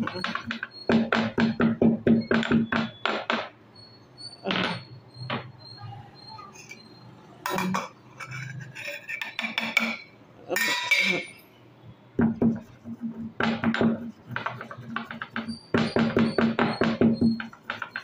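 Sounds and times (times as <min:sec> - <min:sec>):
pestle knocking in stone mortar: 0:00.0 - 0:03.5, 0:12.2 - 0:18.0.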